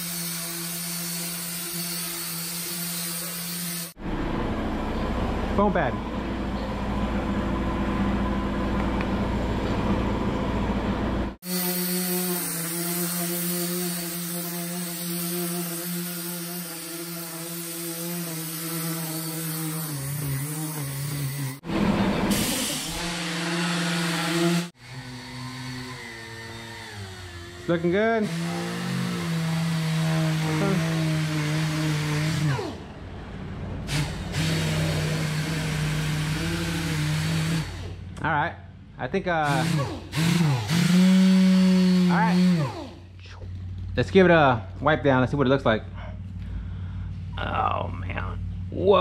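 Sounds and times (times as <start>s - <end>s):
handheld buffer motor running: 11.4s - 21.6s, 22.3s - 32.8s, 33.9s - 38.0s, 39.4s - 43.0s
pneumatic polisher humming: 11.4s - 32.8s, 33.9s - 38.1s.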